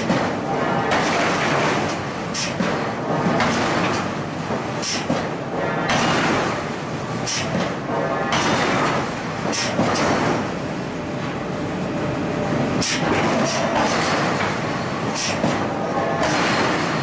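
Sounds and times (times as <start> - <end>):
machinery din: 13.0 - 17.0.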